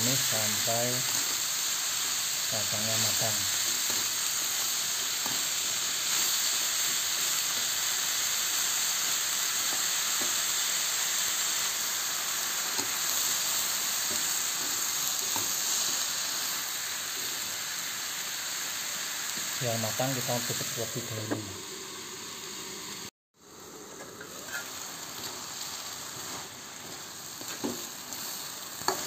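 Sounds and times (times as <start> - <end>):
food sizzling in a wok: 0.0 - 29.0
metal spatula scraping pan: 24.2 - 24.7.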